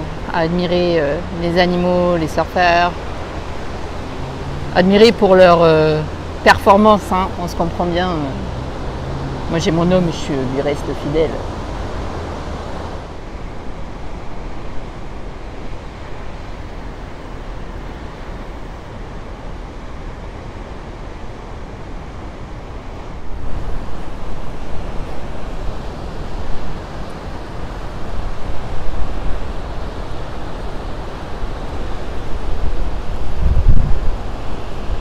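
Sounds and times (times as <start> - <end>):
wind buffeting microphone: 10.6 - 35.0.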